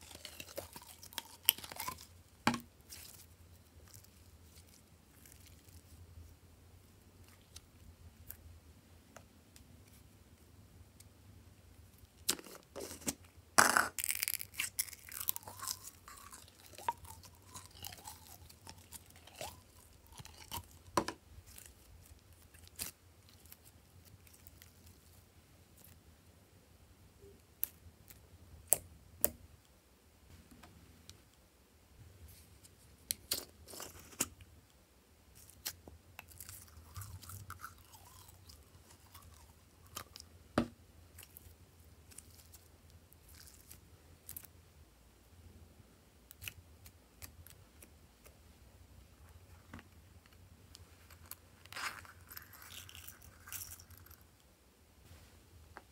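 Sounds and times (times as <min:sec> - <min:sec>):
slime squelching and crackling: 0:00.0 - 0:02.2, 0:02.8 - 0:05.9, 0:14.0 - 0:25.1.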